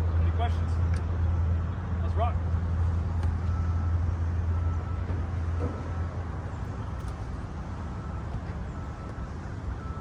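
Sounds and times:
vehicle rumble: 0.0 - 10.0
reversing alarm beeps: 3.4 - 6.4, 7.7 - 10.0.

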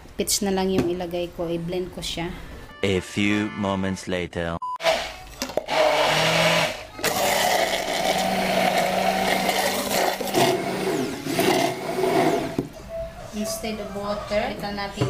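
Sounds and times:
immersion blender running: 4.8 - 12.6.

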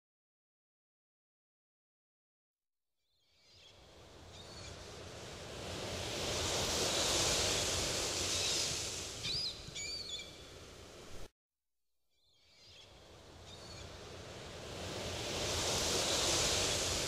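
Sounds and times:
ocean surf breaking on beach: 3.9 - 11.3, 13.0 - 17.0
high bird chirps: 9.2 - 10.5.

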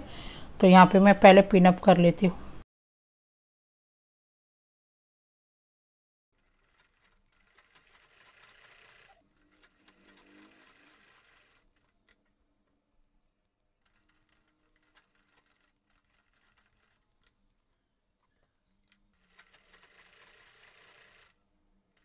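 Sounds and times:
sewing machine stitching: 6.4 - 12.3, 13.8 - 17.3, 18.9 - 22.0.

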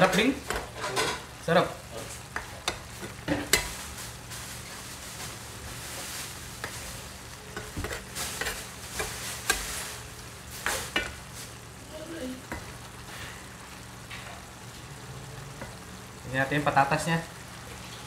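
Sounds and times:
frying hiss: 0.0 - 18.0
metal spoon scraping frying pan: 7.5 - 11.2.

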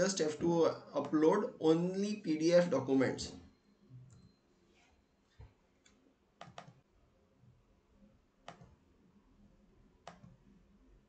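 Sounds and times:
mouse and keyboard clicks: 6.4 - 6.8, 8.5 - 8.7, 10.1 - 10.4.

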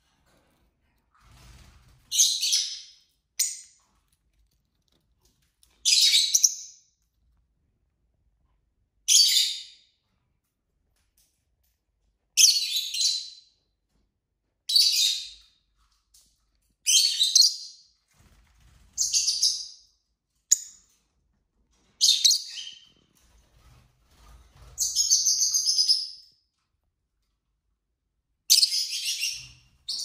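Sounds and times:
bird chirping: 5.6 - 6.9, 16.8 - 17.8, 22.0 - 22.9, 24.8 - 26.3, 28.5 - 30.0.

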